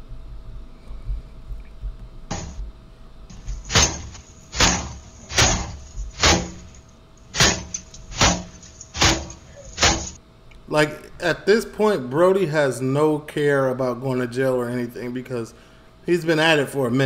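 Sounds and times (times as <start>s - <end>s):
faint steady hum: 0.0s - 17.0s
door being banged hard: 2.3s - 2.6s, 3.3s - 10.2s.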